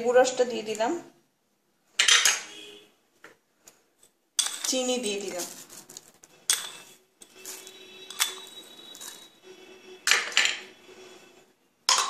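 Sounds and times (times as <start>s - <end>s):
kitchenware clinking: 2.0s - 2.5s, 4.0s - 5.4s, 6.4s - 9.2s, 10.1s - 10.7s.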